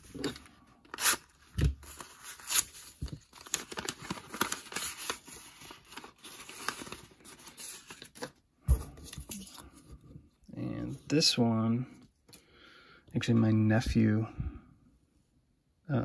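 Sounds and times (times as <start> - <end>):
paper envelope tearing: 0.0 - 8.3
paper rustling and crinkling: 0.0 - 10.0.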